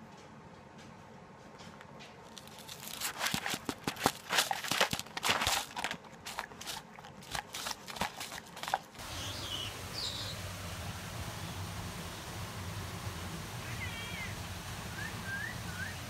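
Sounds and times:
dog crunching food: 2.3 - 9.0.

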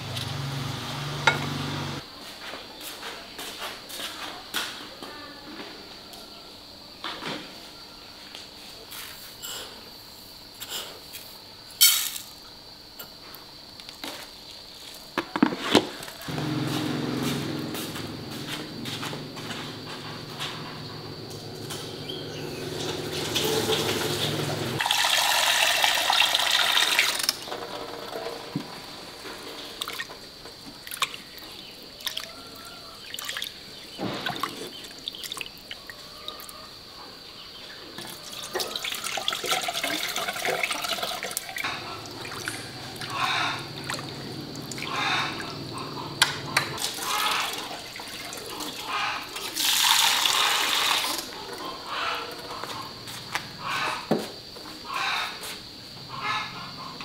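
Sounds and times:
clicks and knocks of washing-up: 19.0 - 24.8
tap water running into sink: 22.6 - 27.4.

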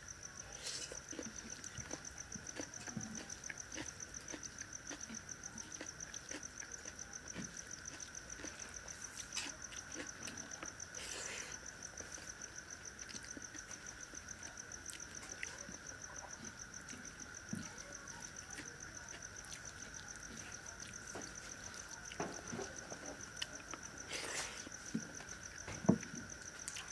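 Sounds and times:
insect drone: 0.0 - 26.9
insects trilling: 0.0 - 26.9
person eating by hand: 0.5 - 26.9.

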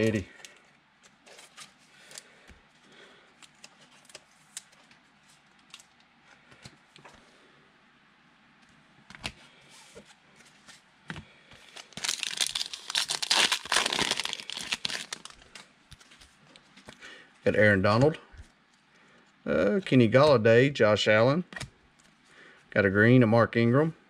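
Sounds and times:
wrapper torn open and crinkled: 11.8 - 15.6.

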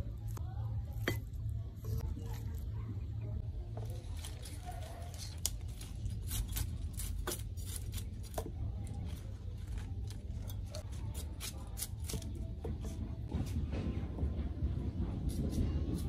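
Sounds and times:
leaves stripped from stems: 3.8 - 12.5.

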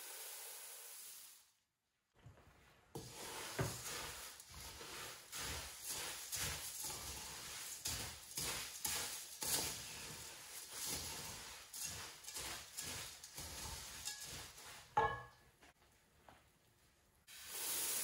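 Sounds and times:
puffed rice rustling: 3.0 - 15.0
spatula scraping metal pan: 3.0 - 15.4.

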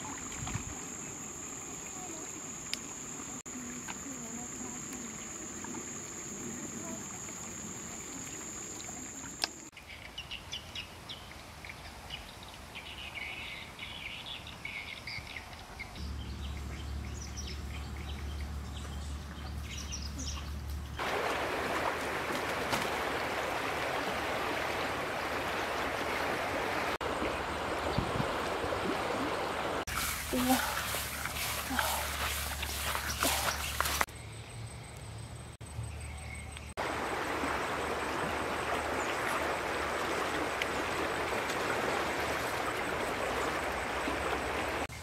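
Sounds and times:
flowing water rushing: 0.0 - 9.7, 21.0 - 34.1, 36.8 - 44.9
birds chirping: 12.8 - 21.0, 27.0 - 34.1.

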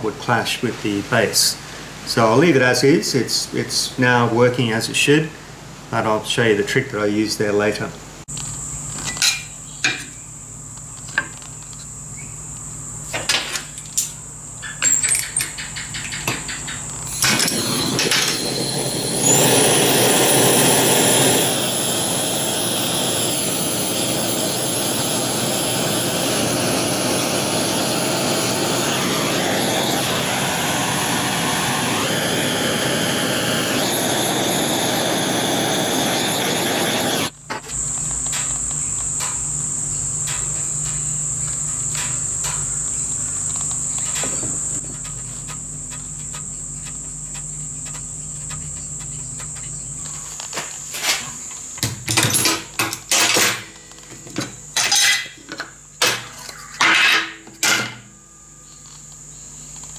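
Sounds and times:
gas torch hissing: 14.8 - 47.5.

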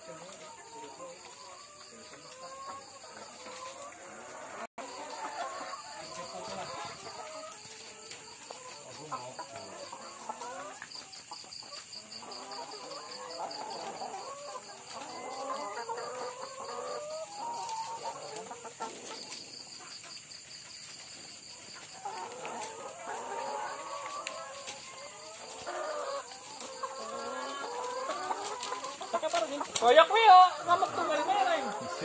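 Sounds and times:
hens clucking and calling: 0.0 - 32.0.

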